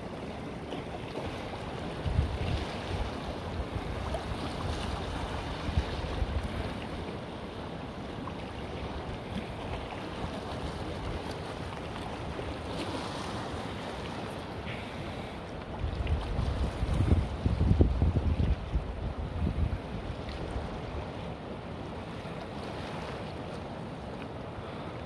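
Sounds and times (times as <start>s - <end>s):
wind buffeting microphone: 15.8s - 20.7s.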